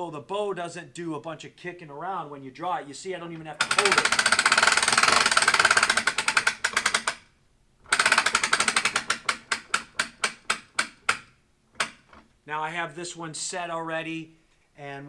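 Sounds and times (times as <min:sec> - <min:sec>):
winch ratchet clicking: 0:03.6 - 0:12.3.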